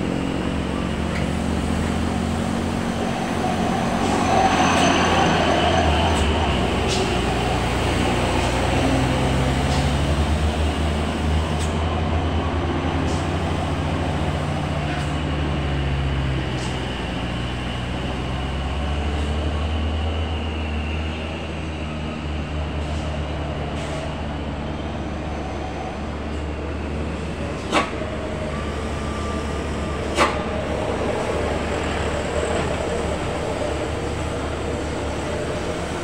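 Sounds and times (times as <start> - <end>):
truck diesel engines droning: 0.0 - 36.0.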